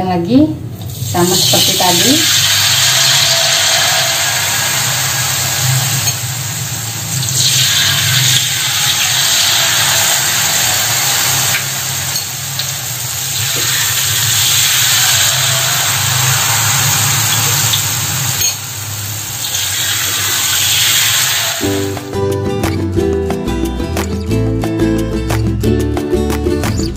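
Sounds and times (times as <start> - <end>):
hot oil sizzling in a wok: 0.8 - 22.1.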